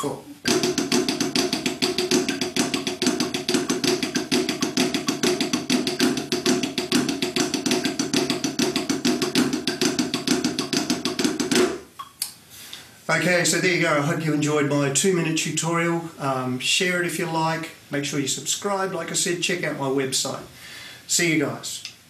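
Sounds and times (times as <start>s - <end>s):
drumsticks on practice pad: 0.4s - 12.1s.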